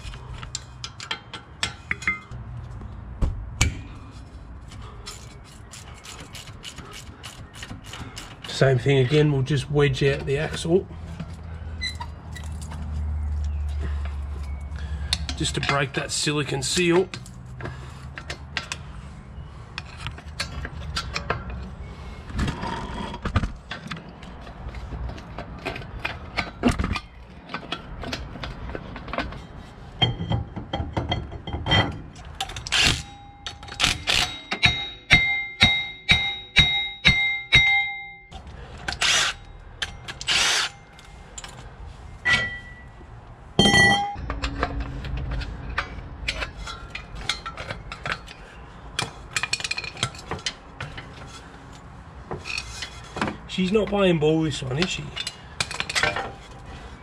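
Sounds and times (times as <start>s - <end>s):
metal knocks and clanks: 22.4s - 38.1s, 42.2s - 51.4s
ringing metal strikes: 33.0s - 38.4s, 42.2s - 43.0s, 43.6s - 45.2s.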